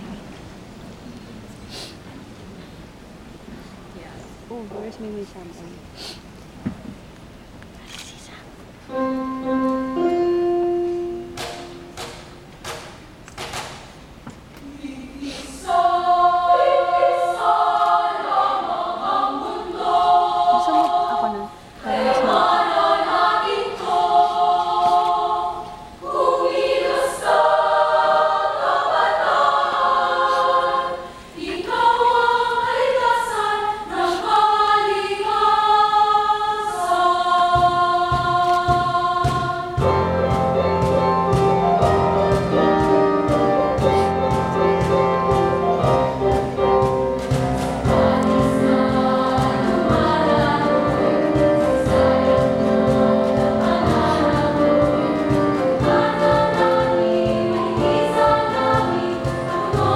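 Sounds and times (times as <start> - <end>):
women's choir singing in harmony: 15.2 - 59.9
steady beat: 37.0 - 59.9.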